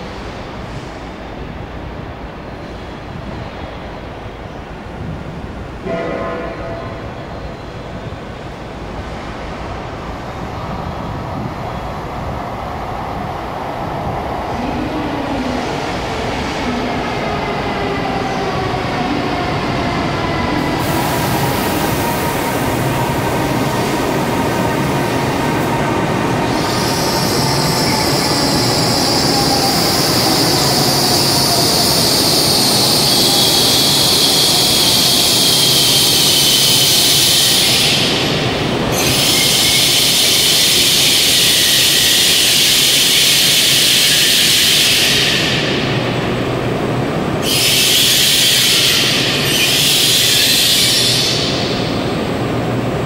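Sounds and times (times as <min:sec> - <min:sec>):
train rushing in: 0:00.0 - 0:53.0
high brake squeal: 0:26.6 - 0:38.2, 0:39.0 - 0:45.6, 0:47.4 - 0:51.8.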